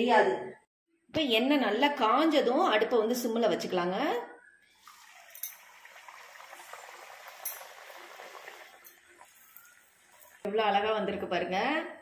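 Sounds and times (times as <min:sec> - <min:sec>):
dough sizzling in hot oil: 0:04.8 - 0:10.5.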